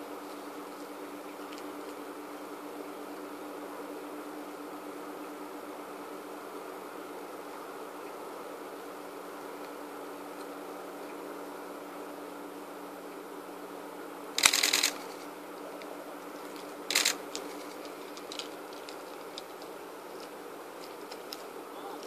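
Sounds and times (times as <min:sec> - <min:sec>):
steady low hum: 0:00.0 - 0:22.0
rapid camera shutter clicks: 0:14.4 - 0:15.3, 0:16.9 - 0:19.5.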